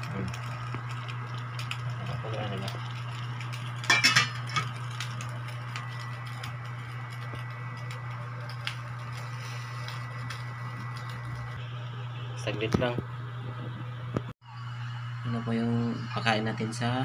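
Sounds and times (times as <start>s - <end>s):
induction cooker humming: 0.0s - 17.0s
metal pot lid clanking: 3.9s - 4.7s
faint high whine: 5.2s - 17.0s.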